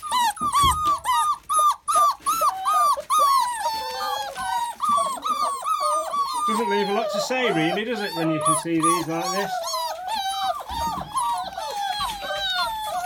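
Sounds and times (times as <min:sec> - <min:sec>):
puppies whining: 0:00.0 - 0:13.0.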